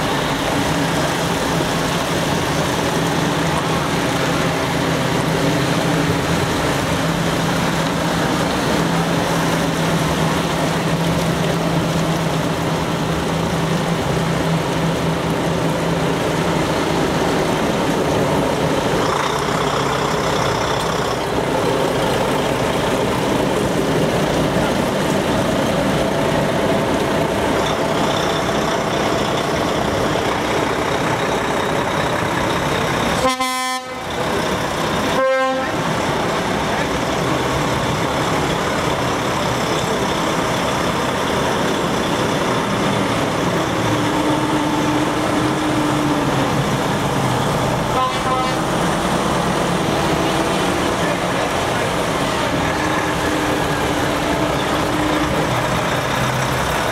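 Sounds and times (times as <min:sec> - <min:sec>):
truck diesel engines droning: 0:00.0 - 0:56.9
air horn toot: 0:33.2 - 0:34.1, 0:35.2 - 0:35.8, 0:48.0 - 0:48.6.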